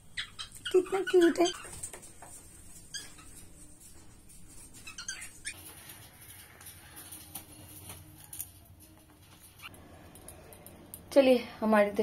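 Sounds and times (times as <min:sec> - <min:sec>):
bird chirp: 0:00.0 - 0:01.8
cockatiels clicking and scratching: 0:00.2 - 0:10.8.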